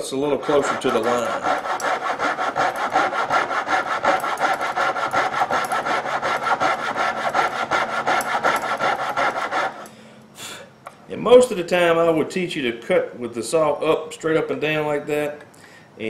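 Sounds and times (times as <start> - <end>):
saw cutting wood: 0.0 - 9.9.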